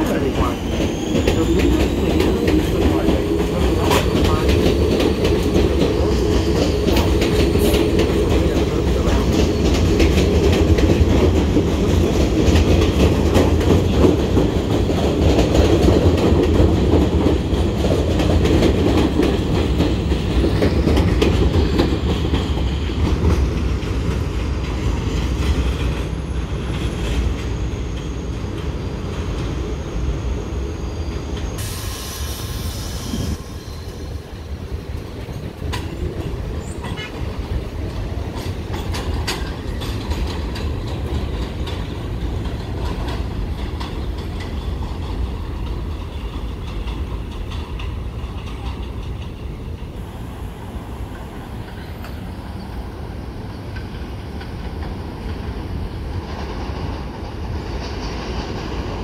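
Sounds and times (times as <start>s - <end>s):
subway train rumbling: 0.0s - 59.0s
wheels clattering over rail joints: 35.0s - 50.0s.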